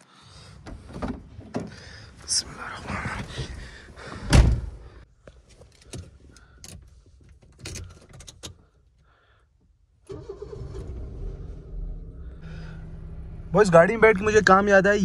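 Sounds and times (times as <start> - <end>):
car engine starting and running: 10.0 - 15.0.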